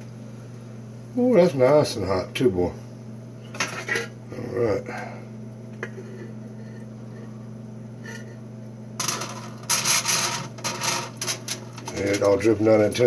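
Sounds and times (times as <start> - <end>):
steady low hum: 0.0 - 13.0
pan scraping on foil: 9.0 - 12.6.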